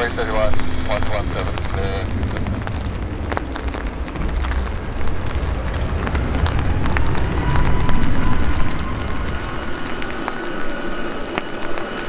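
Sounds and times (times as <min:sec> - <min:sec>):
faint engine whine: 0:00.0 - 0:12.0
jet engines rumbling: 0:00.0 - 0:12.0.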